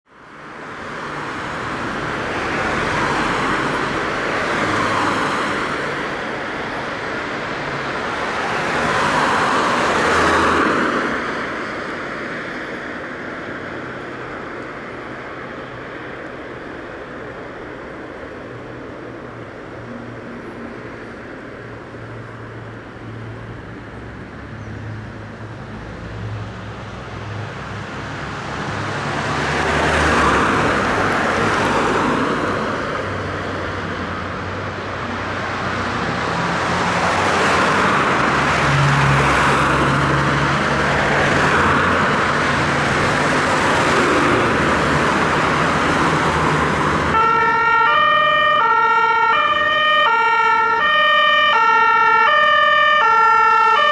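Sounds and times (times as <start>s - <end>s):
fire engines and road noise: 0.0s - 53.9s
two-tone siren: 47.1s - 53.9s.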